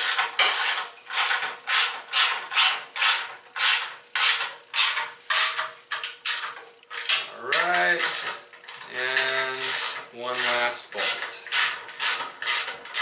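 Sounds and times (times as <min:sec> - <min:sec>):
ratchet wrench clicking: 0:11.4 - 0:13.0.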